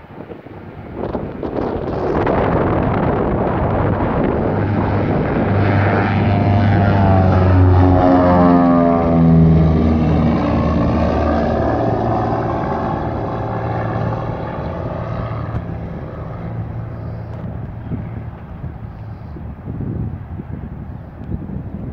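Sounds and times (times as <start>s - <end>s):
propeller plane passing overhead: 0.0s - 21.9s.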